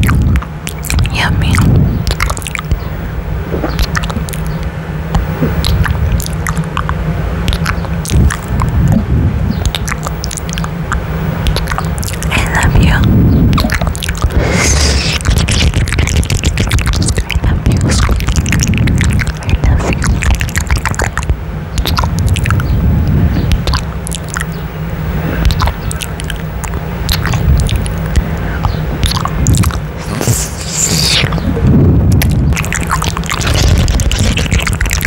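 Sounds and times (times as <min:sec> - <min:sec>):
breath rumble on microphone: 0:00.0 - 0:02.8, 0:03.4 - 0:04.3, 0:08.0 - 0:09.7, 0:12.3 - 0:23.8, 0:27.1 - 0:35.0
kisses and lip smacks: 0:00.0 - 0:02.8, 0:03.6 - 0:22.7, 0:23.4 - 0:24.6, 0:25.4 - 0:35.0.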